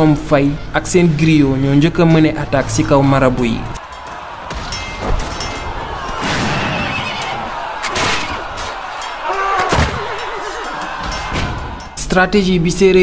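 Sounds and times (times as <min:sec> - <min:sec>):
battle charge din: 0:03.8 - 0:12.0
heavy impacts: 0:03.8 - 0:12.0
horse whinnying: 0:09.2 - 0:10.8.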